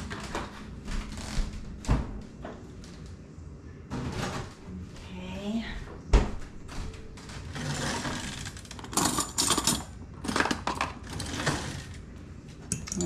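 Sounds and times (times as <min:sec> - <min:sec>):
kitchen utensils rattling and clinking: 0:07.5 - 0:12.0, 0:12.7 - 0:13.0.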